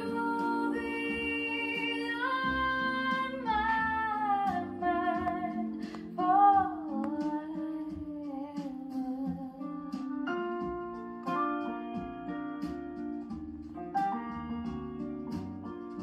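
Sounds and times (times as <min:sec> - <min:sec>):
woman singing: 0:00.0 - 0:10.2
acoustic guitar: 0:00.0 - 0:16.0.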